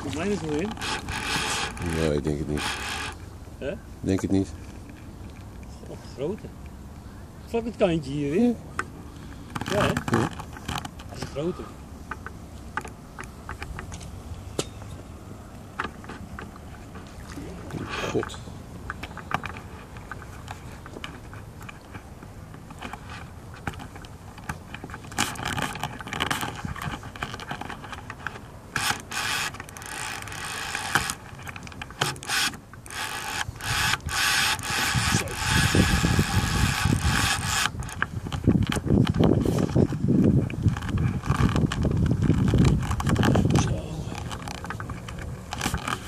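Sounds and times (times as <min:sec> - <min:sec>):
fishing reel drag buzzing: 0:00.0 - 0:03.3, 0:28.7 - 0:31.3, 0:32.1 - 0:38.0
rustling and bumps: 0:15.7 - 0:46.0.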